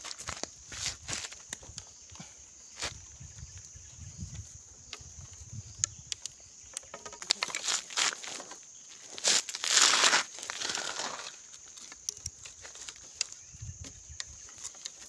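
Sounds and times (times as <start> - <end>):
insects droning: 0.0 - 15.0
bamboo sticks clicking: 5.7 - 8.6, 9.4 - 13.4
dry leaves rustling: 7.3 - 13.4.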